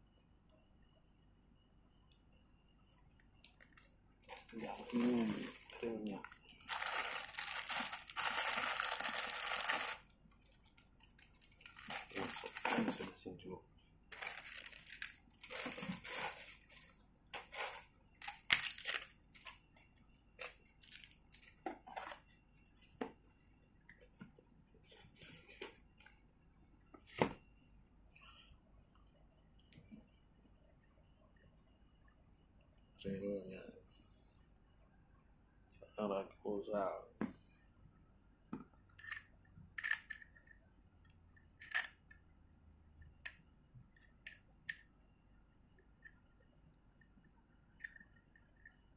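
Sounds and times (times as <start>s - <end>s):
plastic and paper crinkling: 4.2s - 13.1s, 14.1s - 19.6s, 20.4s - 22.2s
metal parts clicking and scraping: 39.0s - 40.5s.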